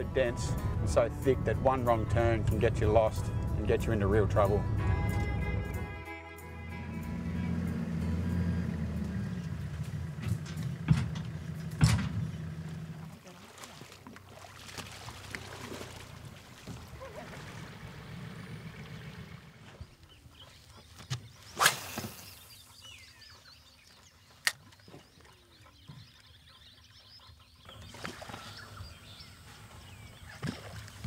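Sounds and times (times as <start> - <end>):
birds calling: 6.9 - 13.1, 16.7 - 31.0
water sloshing and splashing: 9.3 - 22.4, 27.6 - 31.0
fishing rod swishing: 21.4 - 22.6.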